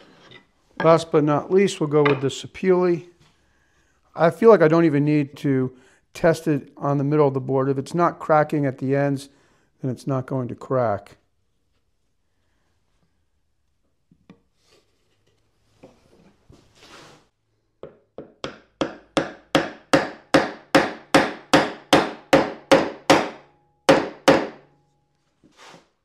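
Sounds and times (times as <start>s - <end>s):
hammer tapping wooden peg: 17.8s - 24.6s.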